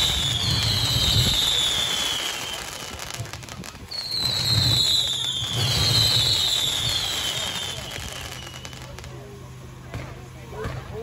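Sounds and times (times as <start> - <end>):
fireworks whistling: 0.0 - 9.4
fireworks crackle: 0.0 - 10.3.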